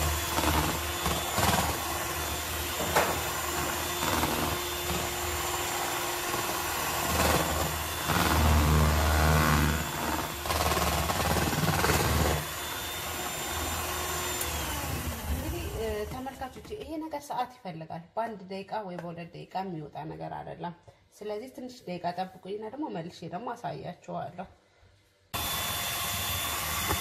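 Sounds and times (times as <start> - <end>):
electric hand mixer running: 0.0 - 16.4, 25.4 - 27.0.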